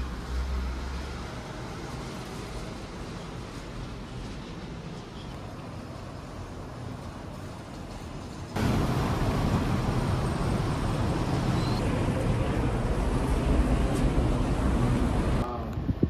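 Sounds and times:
city traffic rumble: 0.0 - 16.0.

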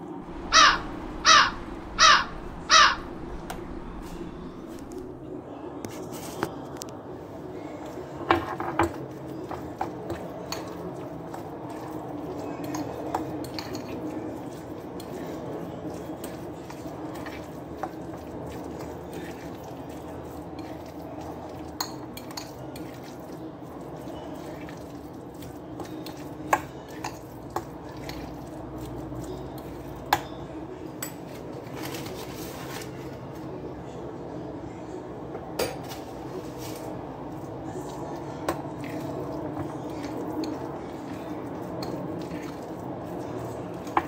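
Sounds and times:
steady background noise: 0.0 - 44.0
utensils and dishes clinking: 7.7 - 33.2, 35.6 - 44.0.

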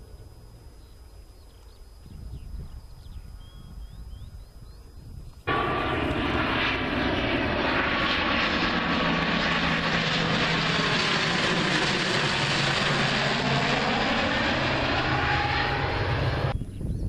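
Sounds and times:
propeller airliner drone overhead: 0.0 - 17.0.

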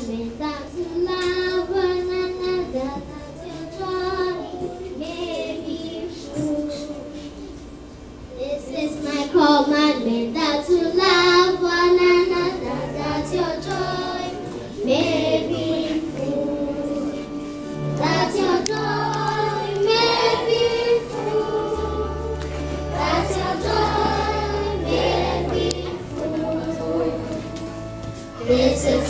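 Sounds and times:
children singing in chorus: 0.7 - 7.6, 8.9 - 29.0
held low accompaniment notes: 11.0 - 29.0.

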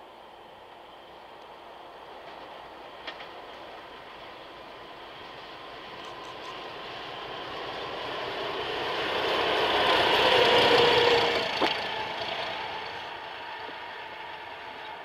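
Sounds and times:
diesel locomotives passing: 0.0 - 15.0.

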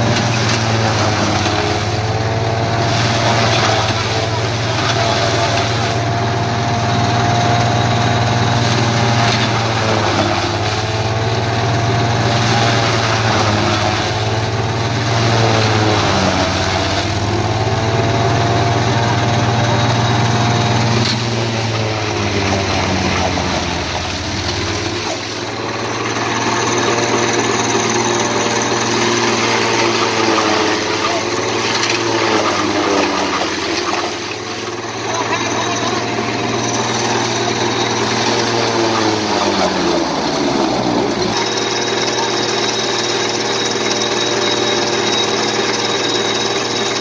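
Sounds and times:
diesel tractor engine running: 0.0 - 47.0
rushing clattering fodder blowing: 0.0 - 47.0.

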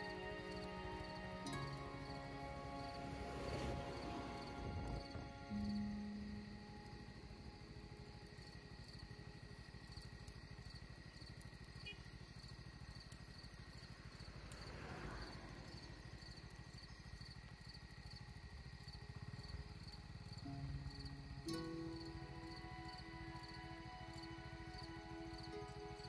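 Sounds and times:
soft rush of noise: 0.0 - 9.6, 13.5 - 16.9
insects chirping: 0.0 - 26.0
low rumble: 1.6 - 8.4.

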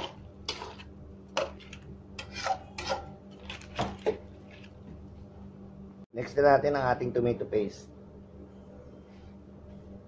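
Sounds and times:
spatula scraping metal wok: 0.0 - 3.2.

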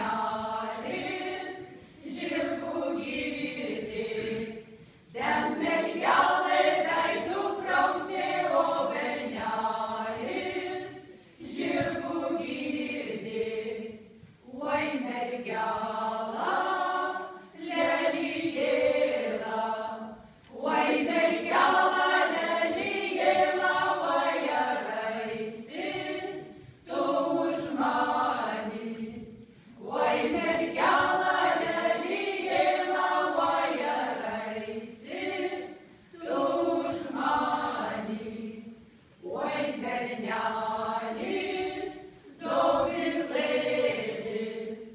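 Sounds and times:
women singing a cappella: 0.0 - 44.9.

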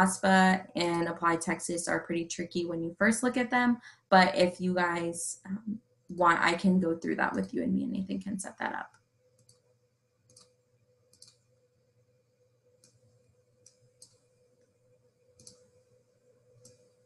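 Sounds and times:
faint steady hum: 0.0 - 17.0
faint irregular clicks: 8.9 - 11.5, 12.7 - 15.8, 16.5 - 17.0.

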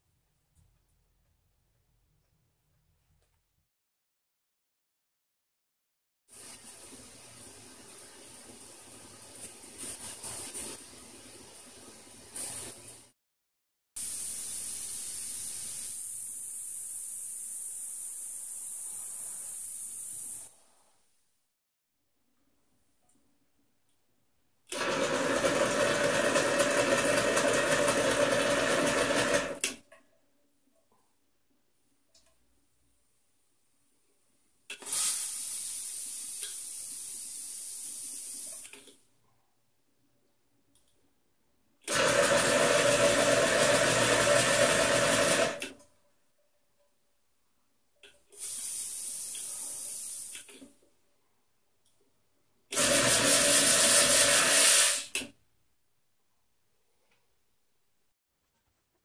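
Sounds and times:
steam hissing and sputtering: 14.0 - 20.6, 34.7 - 38.8, 48.3 - 50.6, 52.8 - 55.2
espresso maker sputtering rush: 24.7 - 29.6, 41.9 - 45.6, 52.8 - 55.1.

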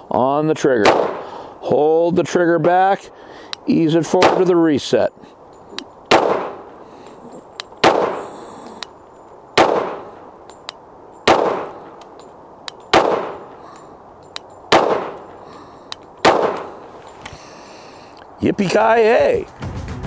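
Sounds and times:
pistol shots with echo: 0.8 - 1.3, 4.1 - 4.6, 6.1 - 6.7, 7.8 - 8.3, 9.6 - 10.2, 11.2 - 12.0, 12.9 - 13.6, 14.7 - 15.4, 16.2 - 16.8.

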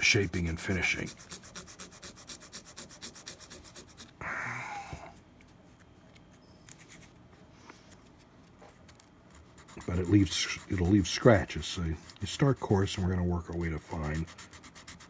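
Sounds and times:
sandpaper rubbing by hand: 0.0 - 4.1, 9.6 - 15.0.

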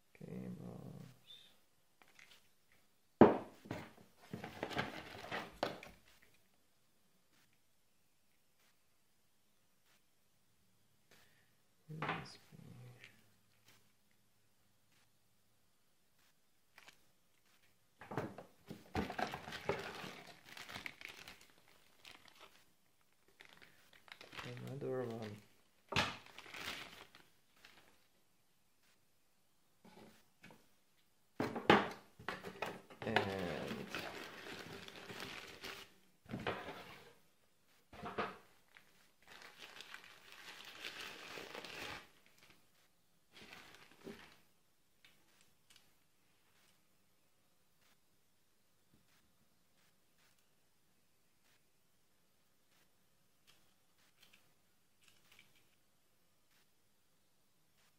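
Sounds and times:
cable being handled: 2.0 - 2.8, 16.2 - 17.8, 18.7 - 28.1, 52.7 - 55.8
cardboard packaging crinkling: 18.9 - 28.1, 33.0 - 36.0, 38.7 - 42.6, 43.3 - 44.5.

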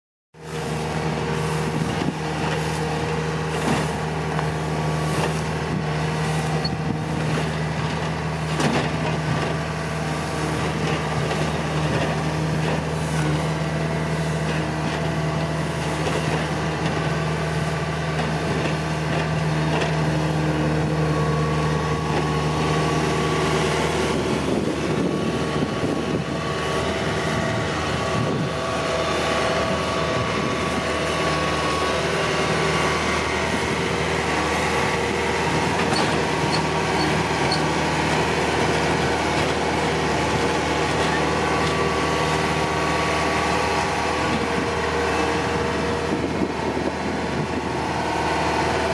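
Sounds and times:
combine harvester engine drone: 0.4 - 48.9
clatter of threshing gear: 35.7 - 37.8.

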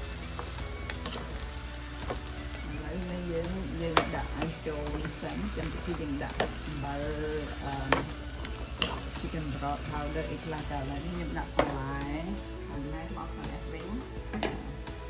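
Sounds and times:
food sizzling in pan: 0.0 - 15.0
utensil clicking against pan: 7.9 - 9.3.

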